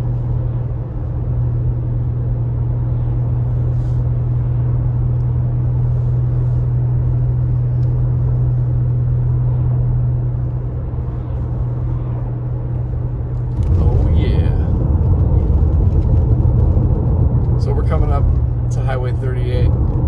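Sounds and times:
car road noise inside cabin: 0.0s - 20.0s.

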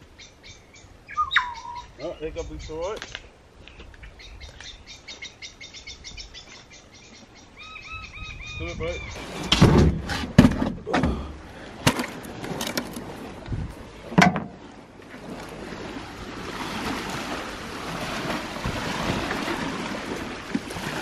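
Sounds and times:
surf washing onto beach: 11.0s - 21.0s.

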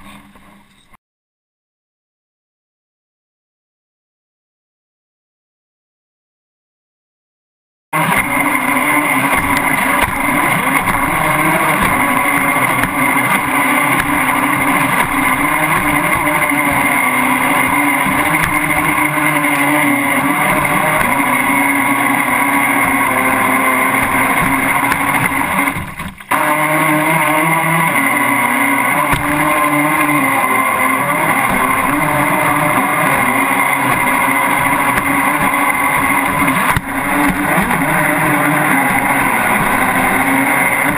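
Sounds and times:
boat motor whine: 8.0s - 40.9s.

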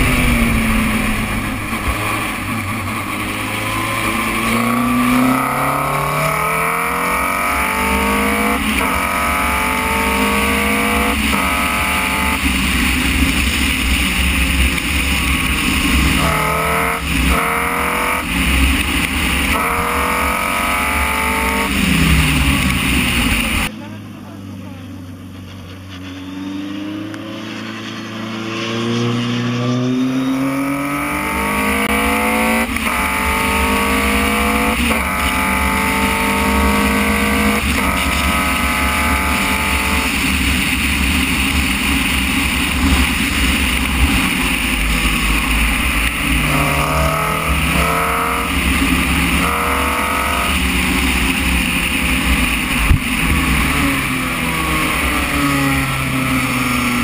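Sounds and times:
wind rush: 0.0s - 4.5s
race car engine accelerating: 0.0s - 57.0s.

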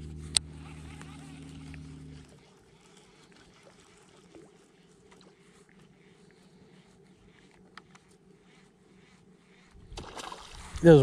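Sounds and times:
soft ticks: 7.6s - 8.1s.

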